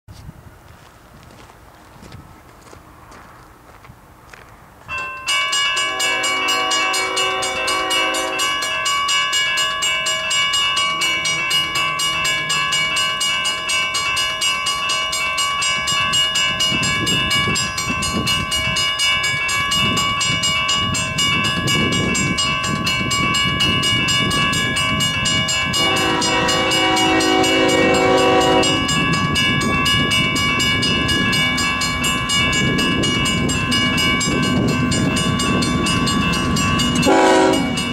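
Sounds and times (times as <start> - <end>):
train rumble: 0.1 - 37.9
crossing bell ringing: 4.8 - 37.9
locomotive horn blasts: 5.8 - 8.7, 25.7 - 29.0, 37.0 - 37.9.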